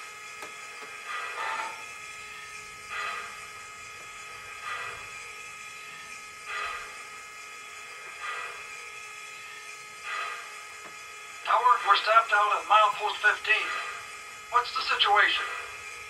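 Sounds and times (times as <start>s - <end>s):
steam locomotive air pump panting: 0.9s - 5.4s, 6.0s - 7.3s, 7.9s - 8.8s, 10.0s - 11.0s.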